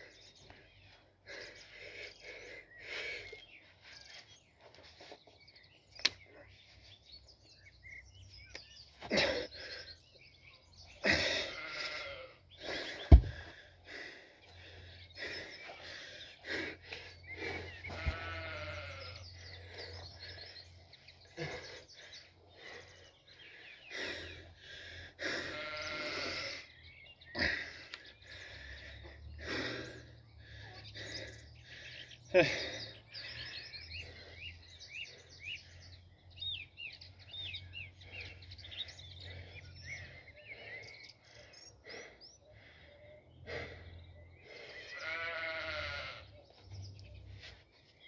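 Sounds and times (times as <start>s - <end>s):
sheep bleating: 11.4s - 12.4s, 17.9s - 19.2s, 25.4s - 26.3s, 44.9s - 46.3s
heavy stone thud on grass: 13.1s - 13.4s.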